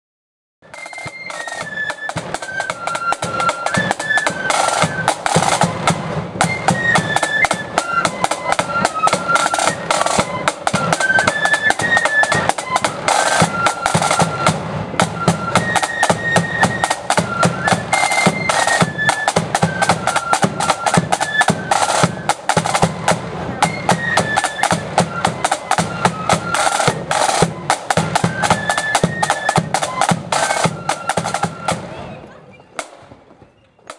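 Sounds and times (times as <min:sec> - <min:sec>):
snare drums rolling: 0:00.6 - 0:33.3
flute melody: 0:00.6 - 0:33.9.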